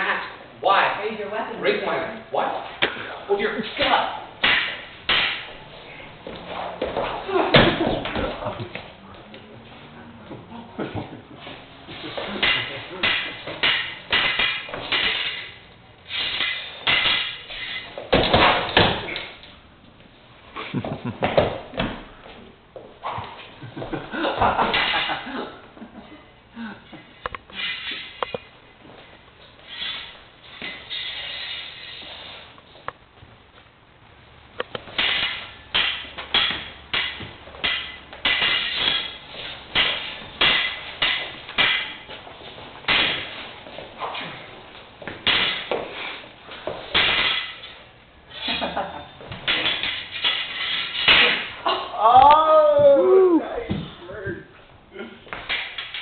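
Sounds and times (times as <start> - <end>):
rapier blades clashing: 3.8 - 5.6, 12.2 - 19.4, 34.9 - 42.2, 42.8 - 47.8, 49.4 - 51.6.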